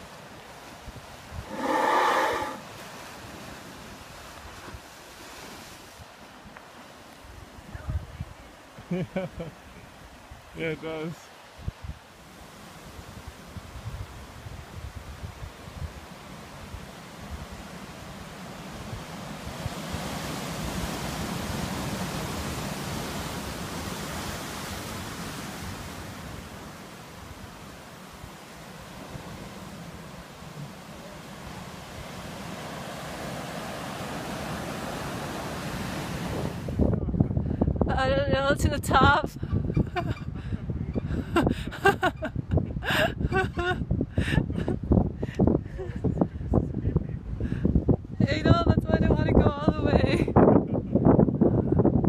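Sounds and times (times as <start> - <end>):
surf washing over rock: 0.0 - 37.1.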